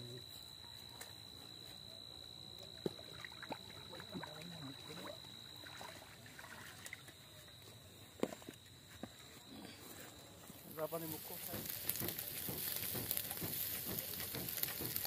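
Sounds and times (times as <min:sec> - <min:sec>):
fish splashing in water: 0:02.9 - 0:07.1.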